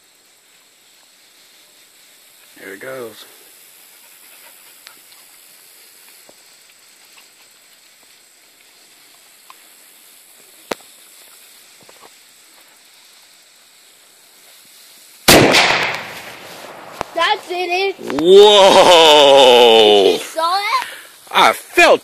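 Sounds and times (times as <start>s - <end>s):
fuse hissing: 0.0s - 22.0s
cannon firing bang: 15.3s - 17.0s.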